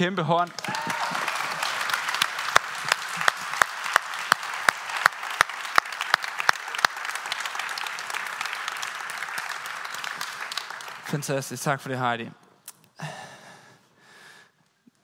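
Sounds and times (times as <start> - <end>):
congregation applauding: 0.0 - 12.0
loud close claps: 0.4 - 11.2.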